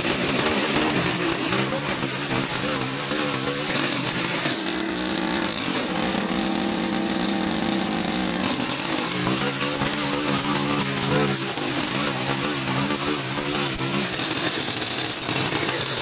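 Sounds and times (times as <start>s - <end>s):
small petrol engine running: 0.0s - 16.0s.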